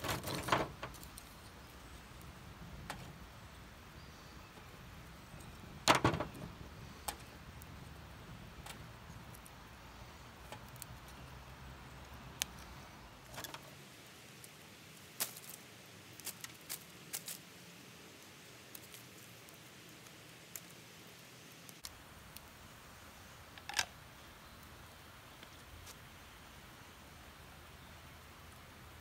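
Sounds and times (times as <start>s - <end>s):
kindling clattering into metal stove: 0.0s - 1.1s
wood fire crackling: 0.0s - 29.0s.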